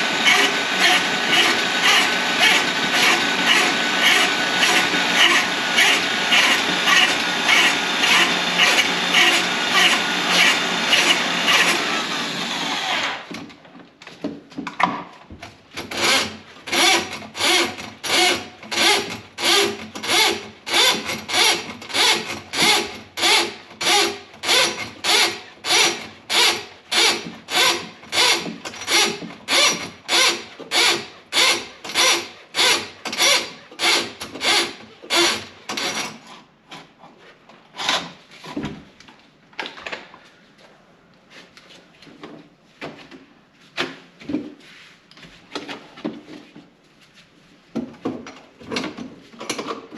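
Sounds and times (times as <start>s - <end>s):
rubbing or scraping strokes: 44.5s - 45.5s.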